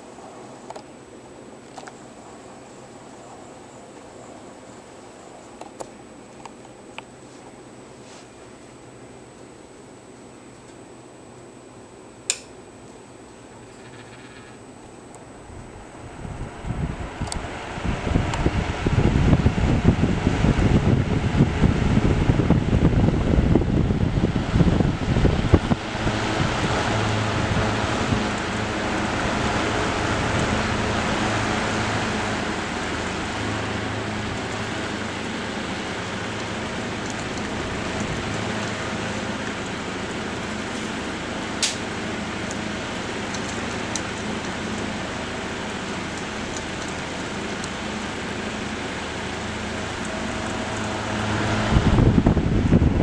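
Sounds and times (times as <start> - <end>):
fan air rush: 0.0 - 53.0
sharp click: 12.3 - 12.6, 41.6 - 41.8
low motor hum: 13.5 - 53.0.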